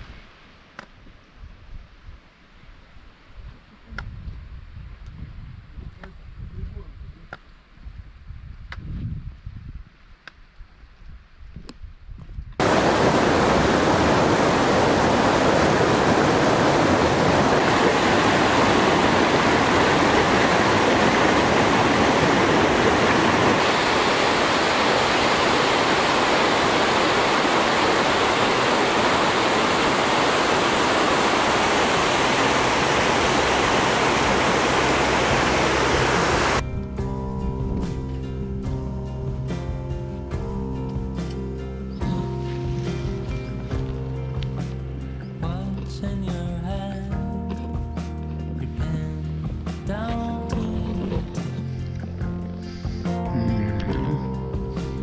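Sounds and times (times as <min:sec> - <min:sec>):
rushing water: 0:12.6 - 0:36.6.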